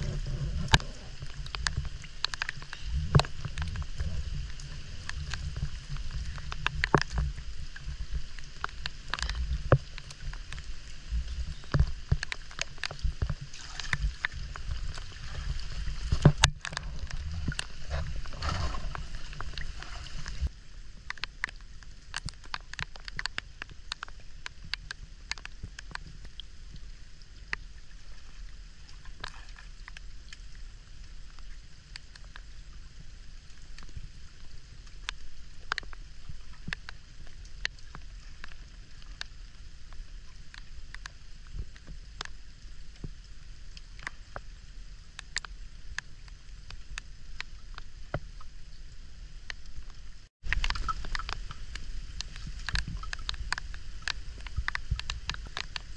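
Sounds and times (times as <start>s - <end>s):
water sloshing: 0.0s - 20.5s, 49.7s - 55.9s
rain falling on water: 0.0s - 55.9s.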